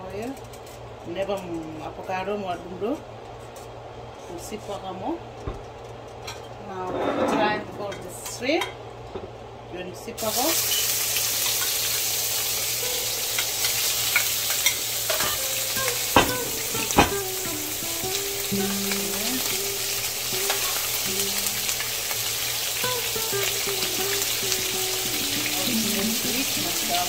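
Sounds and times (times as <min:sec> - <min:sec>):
shrimp sizzling in oil: 0:10.2 - 0:27.0
sharp knocks: 0:16.1 - 0:17.3.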